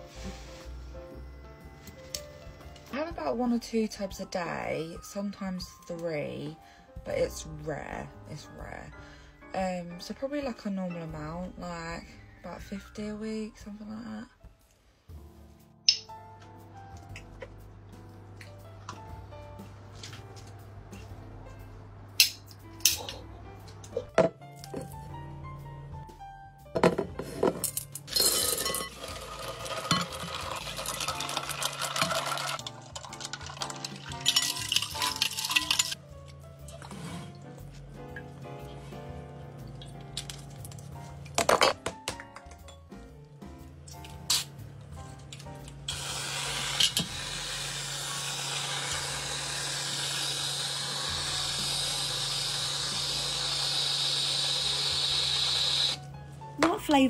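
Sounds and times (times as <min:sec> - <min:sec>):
background music: 0:00.0 - 0:57.0
sharp click: 0:15.9 - 0:16.1
coffee pouring into glass bowl: 0:28.1 - 0:36.0
whipped cream can spraying hiss: 0:45.9 - 0:56.0.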